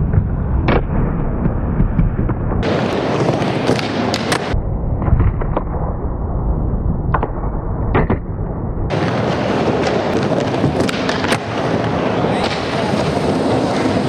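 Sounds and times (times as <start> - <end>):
skateboard wheels rumbling: 1.4 - 4.6, 8.9 - 14.0
skateboard clacking on coping: 8.9 - 14.0.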